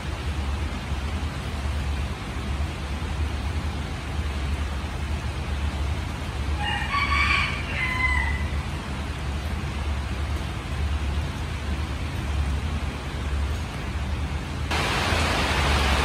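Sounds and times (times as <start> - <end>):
steady rain falling: 0.0 - 16.0
rooster crowing: 6.6 - 8.6.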